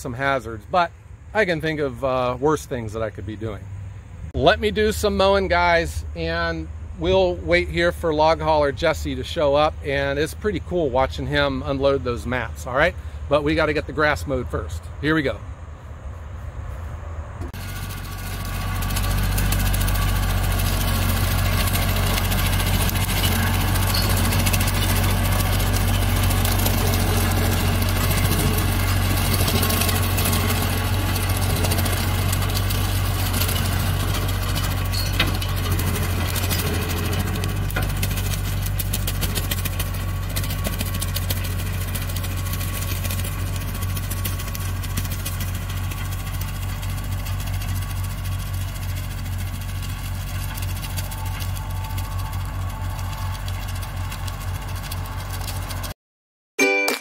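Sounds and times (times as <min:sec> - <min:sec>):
tractor diesel engine under load: 0:00.0 - 0:15.4, 0:17.4 - 0:56.0
rotary cutter through grass: 0:16.7 - 0:56.0.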